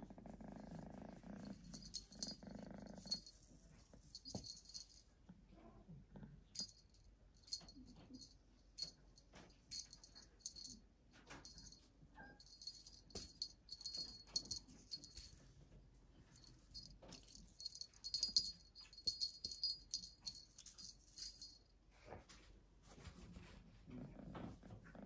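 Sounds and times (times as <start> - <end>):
small bell jingling: 1.4 - 3.5, 4.1 - 5.1, 6.6 - 15.5, 16.3 - 21.7.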